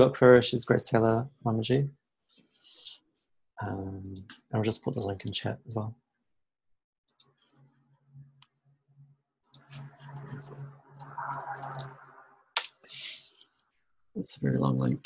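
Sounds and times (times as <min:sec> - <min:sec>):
keyboard and mouse clicks: 0:07.1 - 0:07.7, 0:09.4 - 0:12.0.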